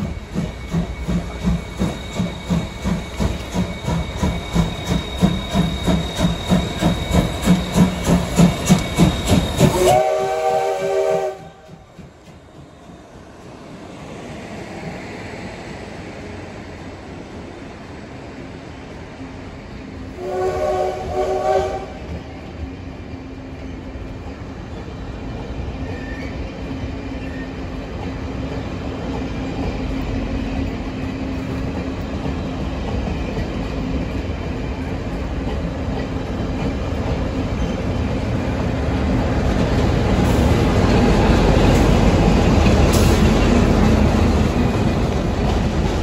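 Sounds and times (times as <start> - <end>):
locomotive engine hum: 0.0 - 46.0
train wheels rumbling: 0.0 - 46.0
train horn blasts: 9.7 - 11.7, 20.2 - 22.1.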